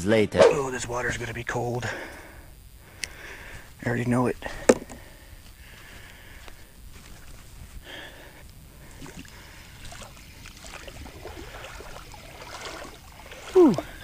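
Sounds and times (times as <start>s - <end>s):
water sloshing around wading legs: 8.8s - 14.0s.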